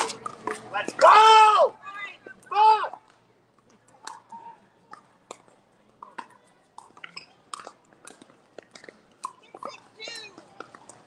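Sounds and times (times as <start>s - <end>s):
pickleball paddles hitting balls: 0.0s - 1.4s, 2.2s - 11.0s
shoe squeaks: 7.0s - 7.4s, 9.3s - 10.4s.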